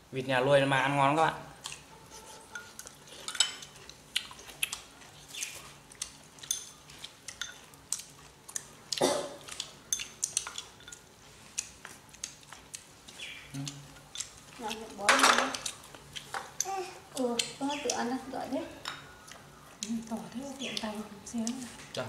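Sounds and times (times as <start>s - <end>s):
chopsticks clinking on bowls: 1.7s - 4.0s, 6.4s - 8.1s, 9.4s - 11.1s.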